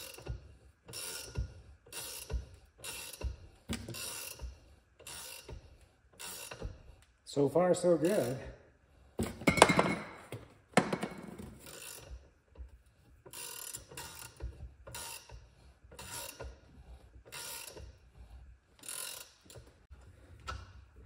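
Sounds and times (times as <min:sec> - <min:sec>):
sharp knocks: 0:09.3 - 0:11.4.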